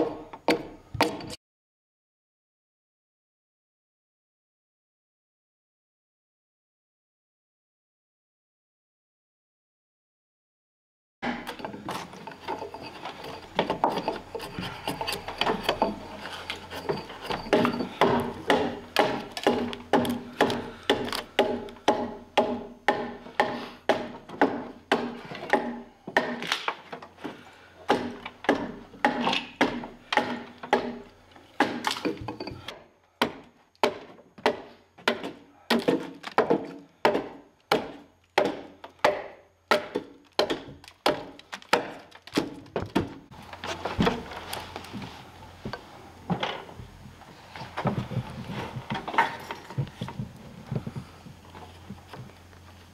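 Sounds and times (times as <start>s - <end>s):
steady hum: 11.3s - 26.0s, 43.3s - 52.9s
axe chopping wood: 17.4s - 26.8s, 27.9s - 31.0s, 31.6s - 32.2s, 33.2s - 43.2s.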